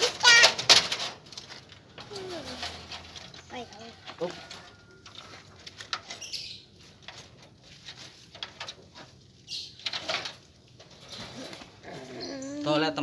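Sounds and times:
wire mesh door rattling: 0.0s - 3.3s, 9.8s - 11.7s.

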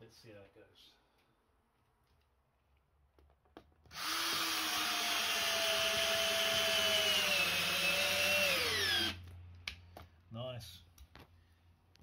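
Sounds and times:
cordless drill driving a bolt: 3.9s - 9.3s.

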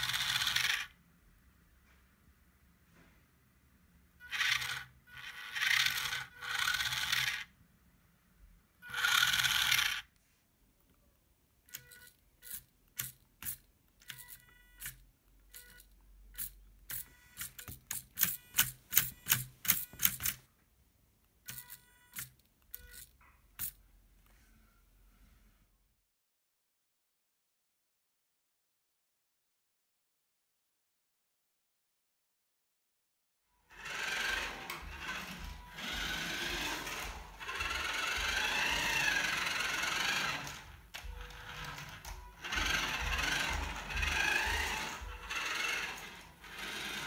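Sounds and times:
toy car motors whirring: 0.0s - 1.0s, 4.2s - 7.5s, 8.8s - 10.2s, 11.7s - 20.5s, 21.4s - 23.8s, 33.7s - 47.0s
faint motor whine: 33.7s - 47.0s.

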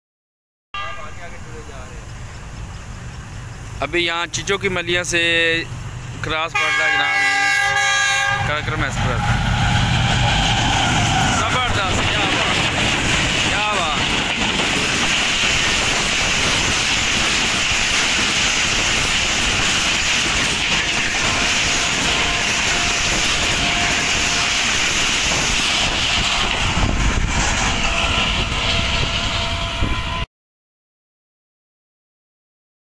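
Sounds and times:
train wheels rushing on rails: 0.8s - 30.3s
sharp clicks of train wheels: 9.2s - 29.3s.

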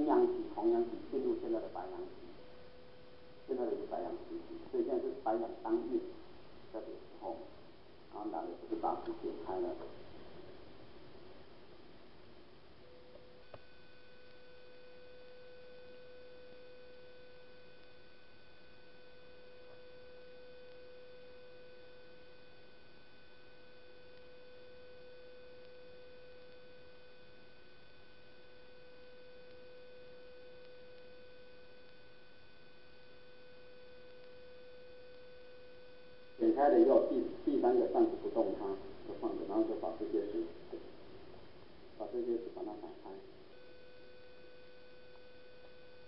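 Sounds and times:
background hiss: 0.0s - 46.0s
steady electronic hum: 0.0s - 46.0s
faint click: 13.1s - 14.4s, 17.8s - 18.0s, 30.6s - 31.1s, 34.1s - 34.4s.

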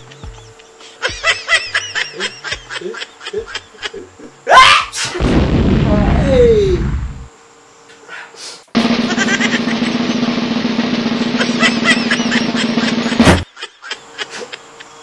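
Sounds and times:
rising whoosh into rumbling boom: 5.2s - 7.3s.

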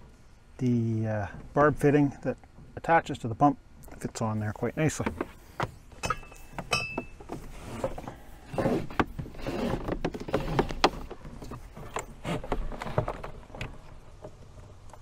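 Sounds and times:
hose knocking against plastic: 8.8s - 14.3s.

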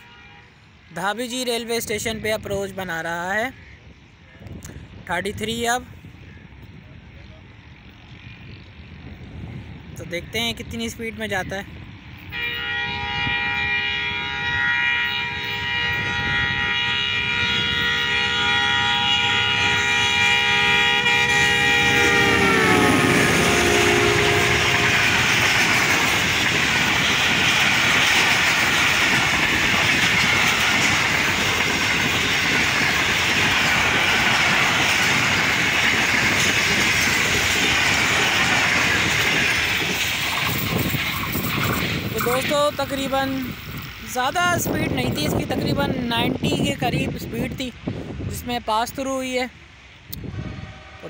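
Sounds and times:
locomotive air horn: 0.0s - 0.6s, 12.3s - 25.4s, 50.1s - 51.0s
train coaches rushing and clattering: 5.3s - 49.4s.

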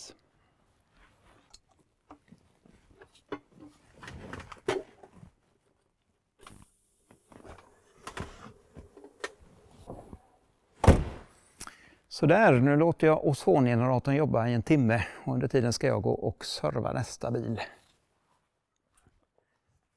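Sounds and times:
faint high hiss: 6.4s - 11.5s.

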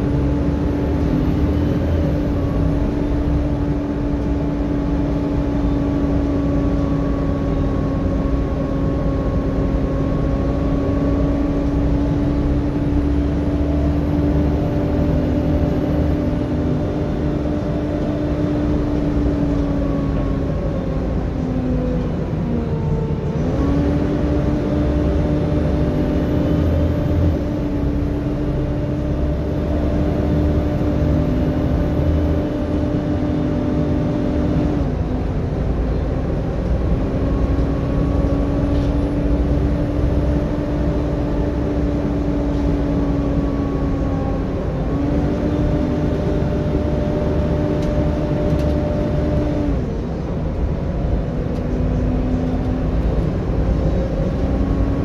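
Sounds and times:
bus engine and fan drone: 0.0s - 55.0s
road noise: 0.0s - 55.0s.

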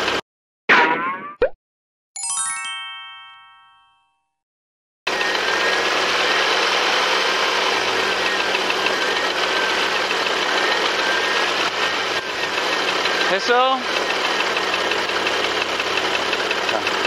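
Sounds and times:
car engine running: 5.1s - 17.0s
rapid engine ticking: 5.1s - 17.0s.

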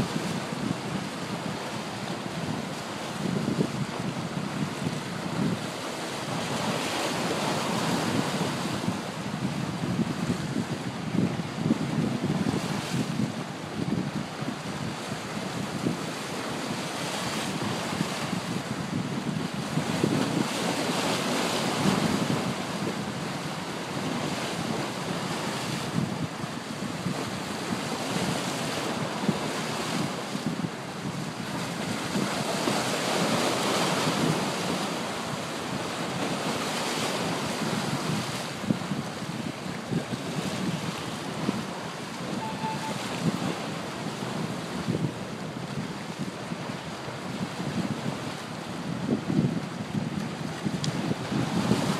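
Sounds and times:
wind buffeting microphone: 0.0s - 51.9s
waves splashing on rocks: 5.0s - 8.9s.

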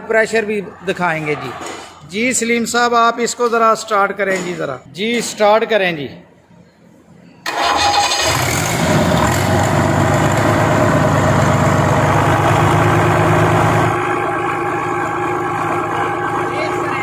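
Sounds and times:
diesel engine starting and running: 7.4s - 17.0s.

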